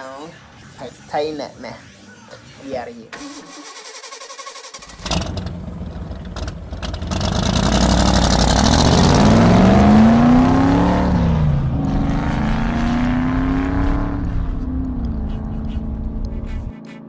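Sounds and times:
car engine revving: 0:04.8 - 0:16.5.

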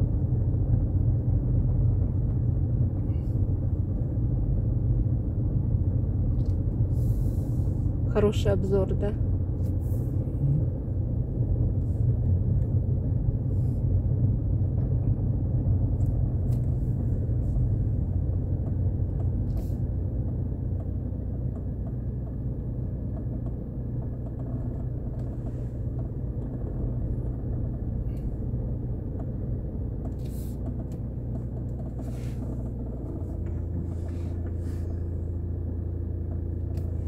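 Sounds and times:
car engine and tyres rumbling: 0:00.0 - 0:37.0.

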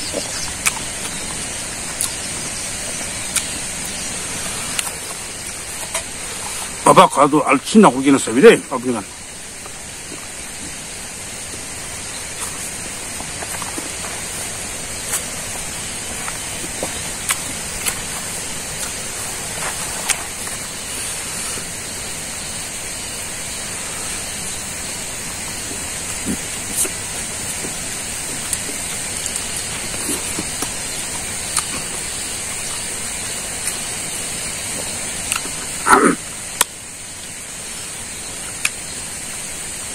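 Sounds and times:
man chewing with lip smacks: 0:00.0 - 0:06.7, 0:11.5 - 0:21.8, 0:25.7 - 0:34.0, 0:34.6 - 0:36.0
steady rain-like hiss: 0:00.0 - 0:39.9
chewing clicks and smacks: 0:00.1 - 0:02.2, 0:03.2 - 0:03.6, 0:28.4 - 0:31.9.

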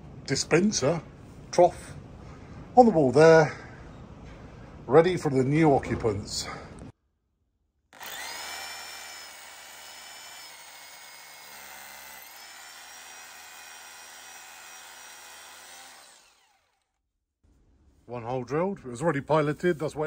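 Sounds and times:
drill boring into wall: 0:08.0 - 0:17.0.

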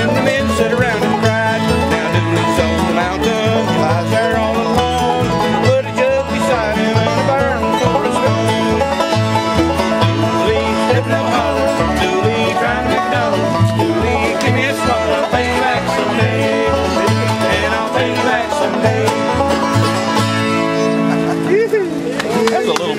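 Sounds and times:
acoustic guitar: 0:00.0 - 0:22.9
banjo picking rapid notes: 0:00.0 - 0:22.9
mandolin: 0:00.0 - 0:22.9
upright bass plucking: 0:00.0 - 0:22.9.

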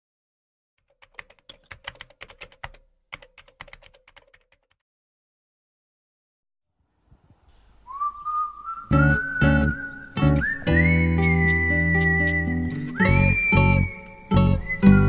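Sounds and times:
keyboard typing clicks: 0:00.8 - 0:04.8.

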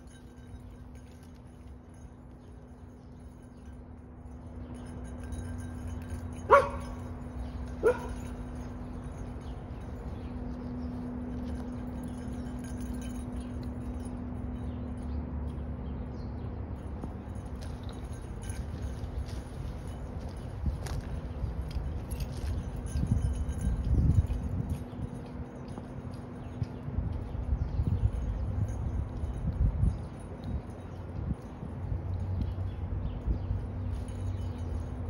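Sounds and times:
dog barking: 0:06.5 - 0:07.0, 0:07.8 - 0:08.2.

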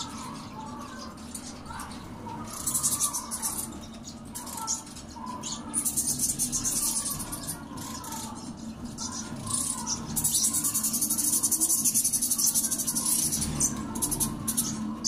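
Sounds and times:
budgerigars chirping: 0:00.0 - 0:15.0.

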